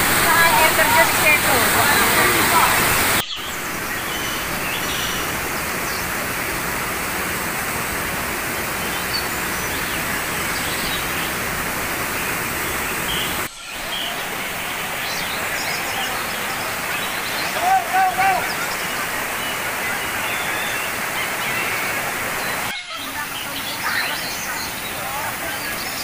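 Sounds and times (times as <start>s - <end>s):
waterfall rushing over rocks: 0.0s - 26.0s.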